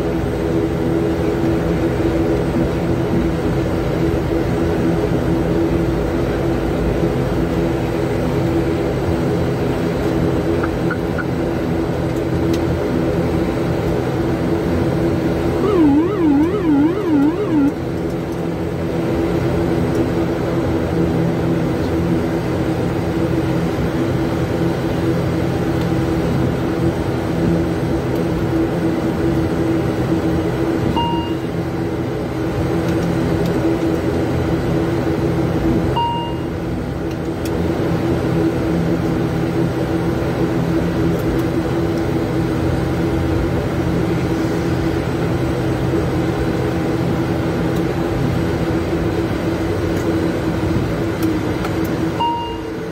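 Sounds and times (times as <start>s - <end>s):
propeller engines droning: 0.1s - 30.6s
short beeps: 15.6s - 17.7s, 36.0s - 36.4s, 52.2s - 52.8s.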